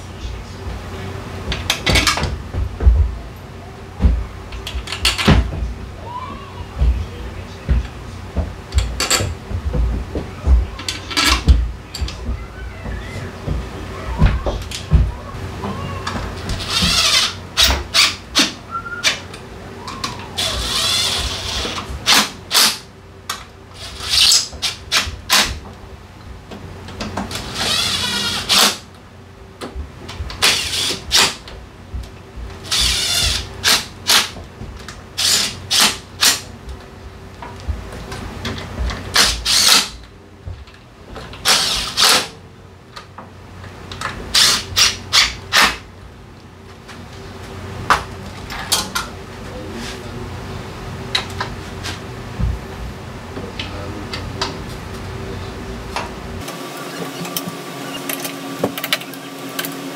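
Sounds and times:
power tool whirring: 0:20.4 - 0:22.8, 0:27.3 - 0:28.8, 0:32.6 - 0:34.3, 0:39.2 - 0:40.0, 0:41.4 - 0:42.3.

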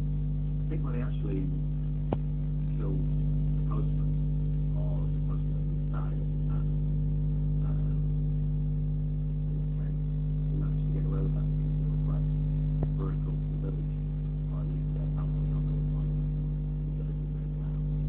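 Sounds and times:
low hum: 0:00.0 - 0:18.0
faint indistinct speech: 0:00.7 - 0:01.6, 0:02.7 - 0:06.7, 0:07.6 - 0:08.1, 0:09.7 - 0:16.2, 0:16.9 - 0:18.0.

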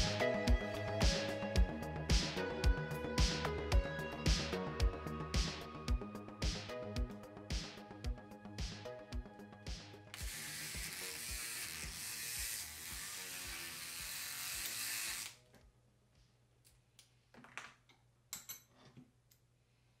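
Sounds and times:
background music with steady beat: 0:00.0 - 0:14.3
electric lock pick buzzing: 0:10.2 - 0:15.4.

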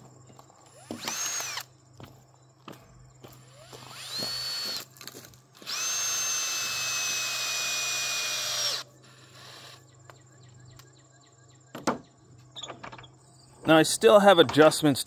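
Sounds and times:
cordless drill whining: 0:00.7 - 0:01.7, 0:03.4 - 0:04.9, 0:05.6 - 0:09.8.

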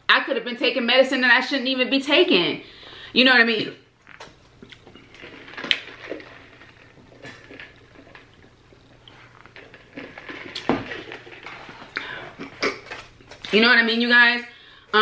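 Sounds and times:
plastic cup clicks and rustles: 0:04.1 - 0:13.5.

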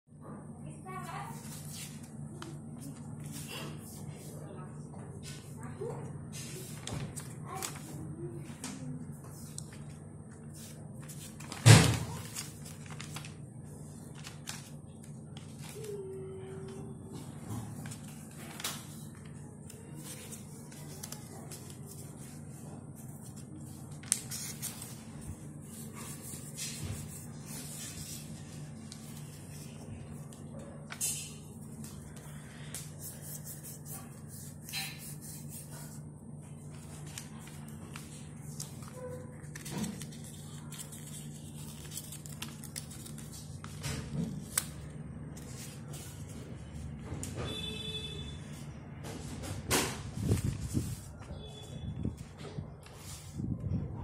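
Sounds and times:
paper ticks and rustles: 0:06.7 - 0:08.0, 0:08.6 - 0:46.4
paper card flapping open: 0:11.0 - 0:13.4, 0:36.7 - 0:44.8.

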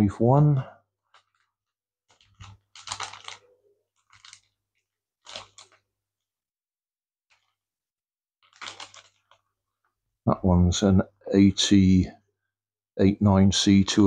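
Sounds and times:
plastic bags crinkling: 0:01.0 - 0:05.9, 0:07.3 - 0:07.6, 0:08.4 - 0:09.6.

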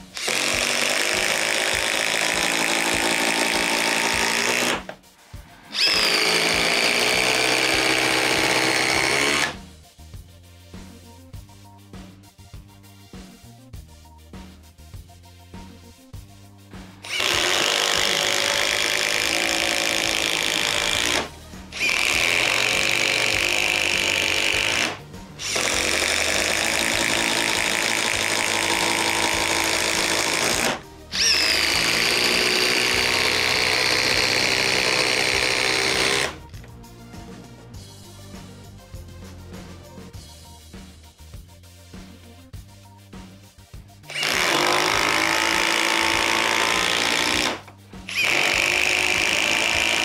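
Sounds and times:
quiet background music: 0:00.0 - 0:50.0
impact driver hammering: 0:00.2 - 0:05.0, 0:05.7 - 0:09.6, 0:17.0 - 0:36.4, 0:44.1 - 0:50.0.

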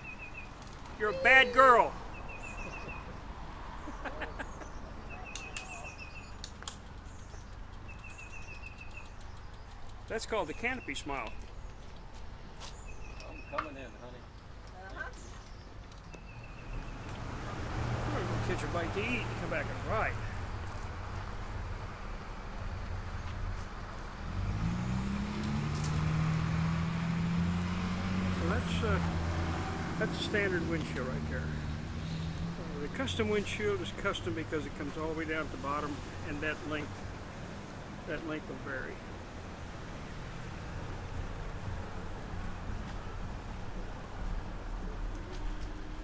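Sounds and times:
bird singing: 0:00.0 - 0:12.0, 0:12.7 - 0:17.2
faint clicks: 0:06.4 - 0:10.1.

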